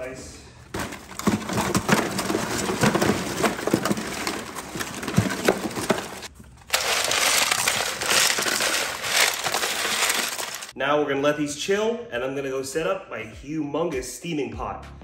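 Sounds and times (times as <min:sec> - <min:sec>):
crab shells clicking and scraping: 0:00.8 - 0:10.7
ice cubes rattling: 0:00.8 - 0:10.7.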